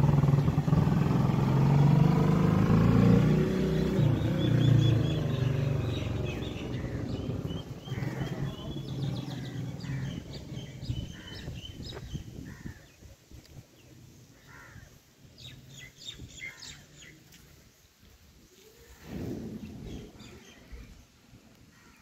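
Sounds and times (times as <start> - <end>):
motor vehicle hum: 0.0 - 12.3
small birds chirping: 3.4 - 22.0.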